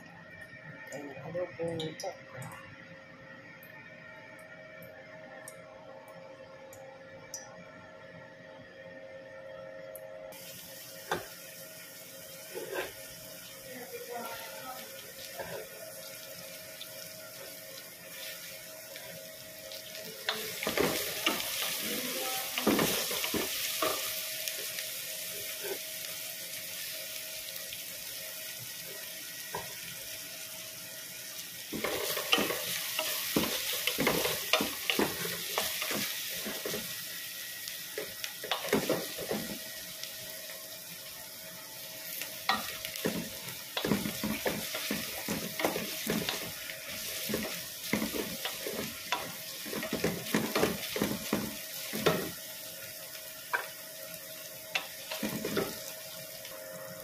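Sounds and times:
onions sizzling in oil: 10.3s - 57.0s
spatula scraping pan: 12.5s - 13.0s.

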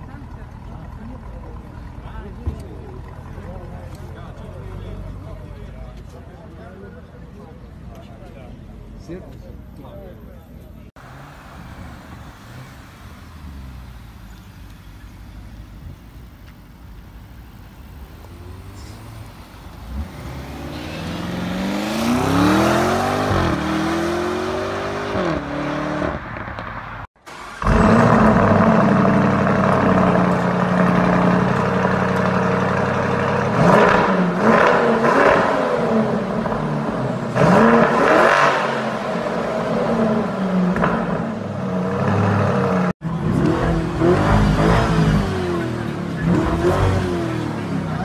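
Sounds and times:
exhaust throttle blips: 13.6s - 48.0s
car engine revving and accelerating: 18.2s - 26.8s, 27.4s - 48.0s.

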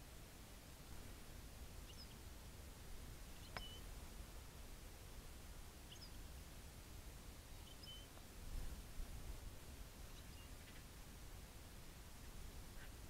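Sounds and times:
songbird short high calls: 3.4s - 3.9s, 7.6s - 8.2s.

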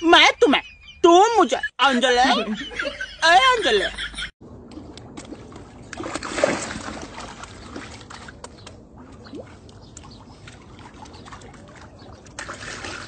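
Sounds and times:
water drips: 4.7s - 13.0s
water lapping against rocks: 4.7s - 13.0s.

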